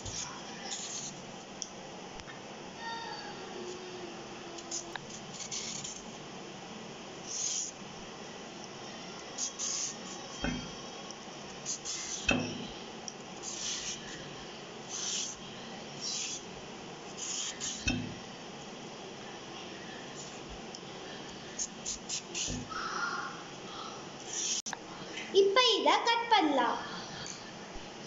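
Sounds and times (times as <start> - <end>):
vegetable peeler scraping: 0.0 - 1.2, 4.6 - 6.1, 7.3 - 7.8, 9.4 - 10.4, 11.6 - 12.4, 13.4 - 14.2, 14.9 - 15.4, 16.0 - 16.5, 17.1 - 18.0, 21.6 - 22.7, 24.2 - 24.7.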